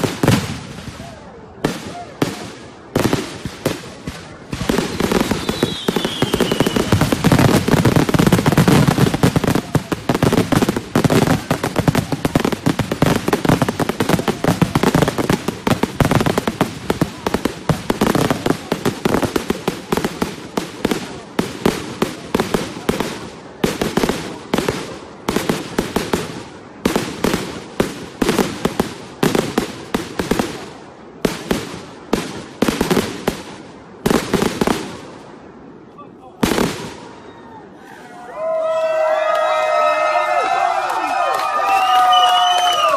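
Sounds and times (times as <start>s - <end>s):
fireworks bangs: 0.0s - 35.7s, 36.3s - 37.4s
falling firework whistle: 5.1s - 7.6s, 41.1s - 42.9s.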